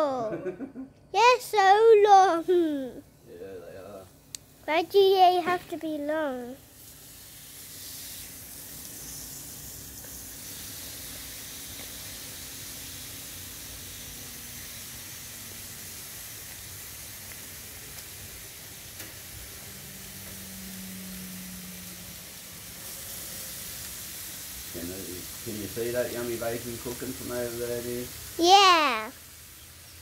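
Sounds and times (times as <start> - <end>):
bacon sizzling: 3.8 - 30.0
small ticks: 11.7 - 12.0.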